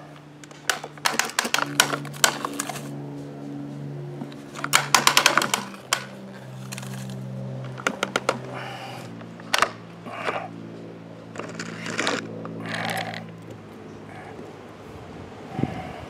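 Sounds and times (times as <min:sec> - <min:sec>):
steady low drone: 0:00.0 - 0:16.0
toy truck plastic clicks: 0:00.4 - 0:02.9, 0:04.3 - 0:08.5, 0:09.5 - 0:10.4, 0:11.3 - 0:13.3.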